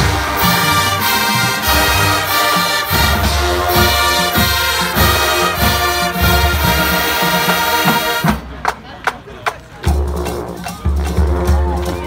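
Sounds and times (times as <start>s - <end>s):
drums beating: 0.0s - 12.0s
marching band playing: 0.0s - 12.0s.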